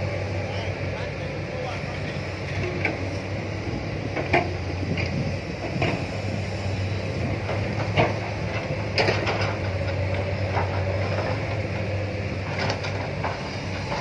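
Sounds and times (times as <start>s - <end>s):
excavator diesel engine running: 0.0s - 14.0s
excavator bucket clanking: 4.0s - 6.1s, 7.2s - 11.8s, 12.4s - 14.0s.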